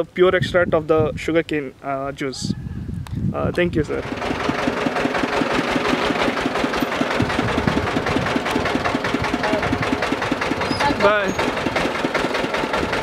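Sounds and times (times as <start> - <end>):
diesel generator engine running: 3.8 - 13.0.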